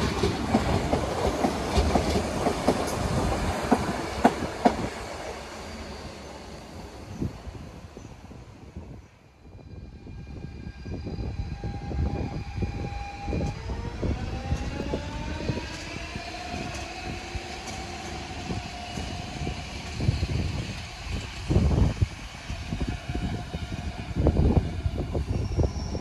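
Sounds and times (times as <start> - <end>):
electric train drive whining: 9.5 - 26.0.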